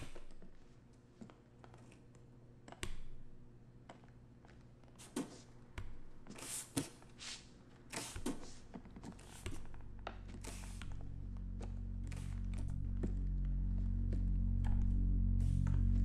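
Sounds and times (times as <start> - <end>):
soft rustling: 4.4 - 13.3
low music drone: 9.2 - 16.0.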